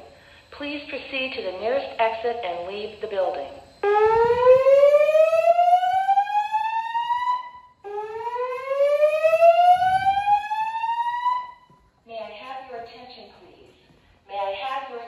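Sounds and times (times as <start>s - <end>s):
fire alarm rising whoop tone: 3.8s - 11.7s.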